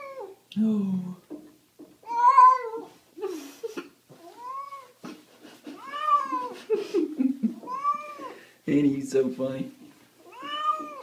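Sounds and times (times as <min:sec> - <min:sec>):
cat meowing in protest: 0:02.0 - 0:02.9, 0:10.3 - 0:11.0.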